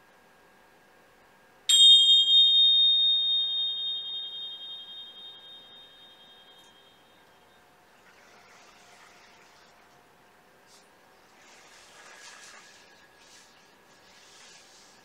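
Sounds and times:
small cymbals ringing: 1.7s - 7.7s.

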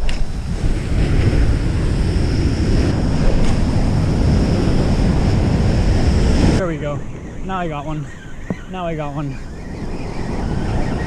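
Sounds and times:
surf washing up beach: 0.0s - 6.9s
wind buffeting microphone: 0.0s - 11.0s.

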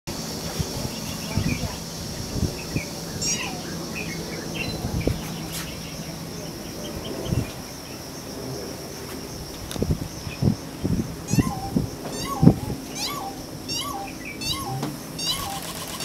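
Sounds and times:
high drone of insects: 0.1s - 16.0s
bird mewing call: 2.6s - 5.9s, 11.3s - 16.0s
short chirps: 11.3s - 16.0s.

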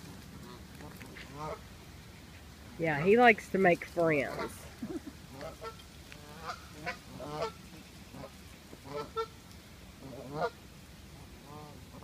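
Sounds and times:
geese honking: 0.4s - 1.6s, 4.2s - 4.7s, 5.3s - 9.4s, 10.0s - 12.0s.

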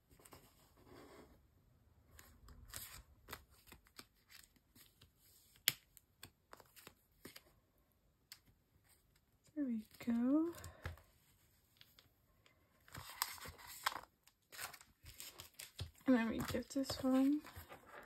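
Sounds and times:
plastic sleeves rustling: 8.3s - 18.0s.

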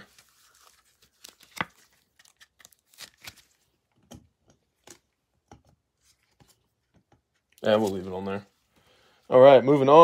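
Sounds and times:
plastic card sleeve rustling: 0.0s - 3.8s, 6.0s - 8.5s.

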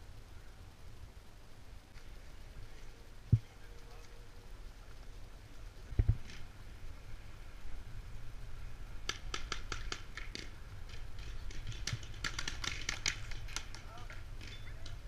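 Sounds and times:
low steady rumble: 0.0s - 15.0s
paintball markers firing: 9.0s - 15.0s.

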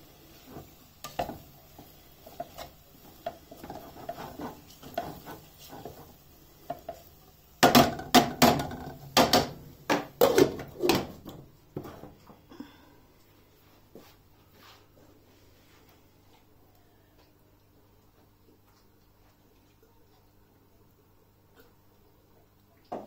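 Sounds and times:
tongs scraping in a saucepan: 0.2s - 7.1s.

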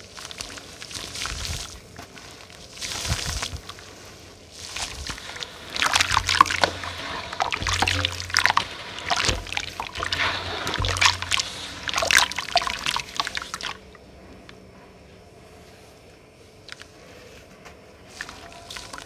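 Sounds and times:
hands mashing pieces in water: 4.6s - 13.9s.

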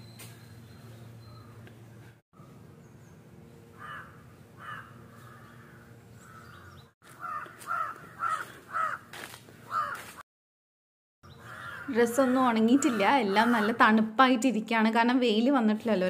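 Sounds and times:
crows cawing: 3.8s - 10.2s, 11.3s - 13.9s.

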